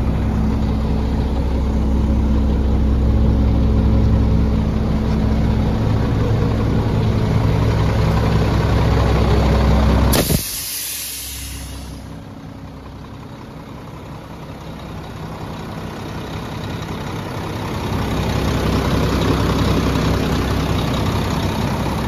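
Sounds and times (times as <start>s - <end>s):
diesel engine idling: 0.0s - 22.0s
sharp air hiss: 10.1s - 12.1s.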